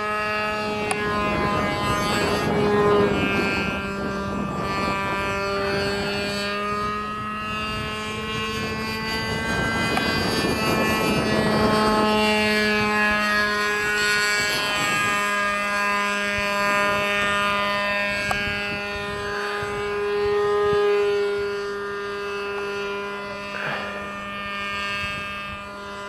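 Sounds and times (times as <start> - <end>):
model aircraft motor droning: 0.0 - 26.0.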